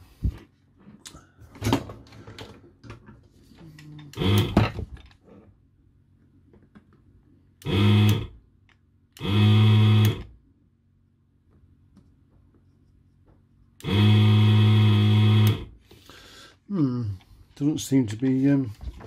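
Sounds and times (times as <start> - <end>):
desoldering pump buzzing: 4.1 - 4.8, 7.6 - 8.4, 9.2 - 10.4, 13.8 - 15.8.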